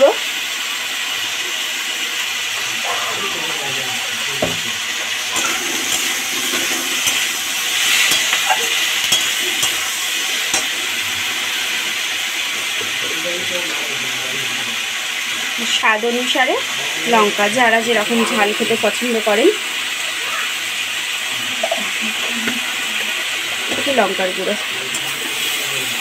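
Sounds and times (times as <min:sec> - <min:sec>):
vegetables sizzling in oil: 0:00.0 - 0:26.0
spatula scraping and knocking pan: 0:04.4 - 0:11.0, 0:24.9 - 0:25.8.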